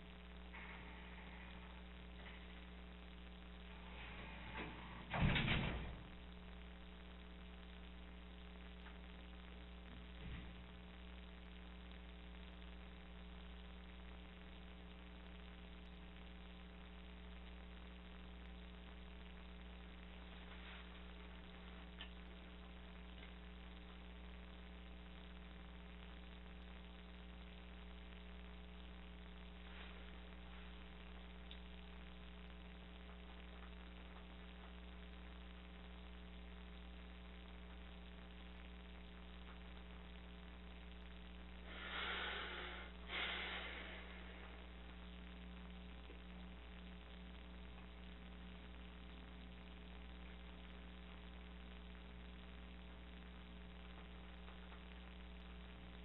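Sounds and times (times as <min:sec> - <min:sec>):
electrical mains hum: 0:00.0 - 0:56.0
breathy rushes of noise: 0:41.6 - 0:44.6.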